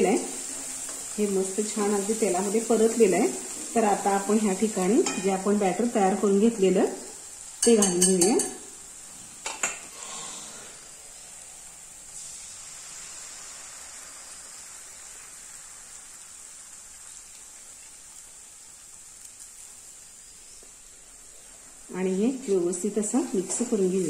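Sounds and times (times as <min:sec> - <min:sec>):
paste sizzling in oil: 0:00.0 - 0:24.0
spoon knocking on pan: 0:05.0 - 0:05.4, 0:07.6 - 0:08.7.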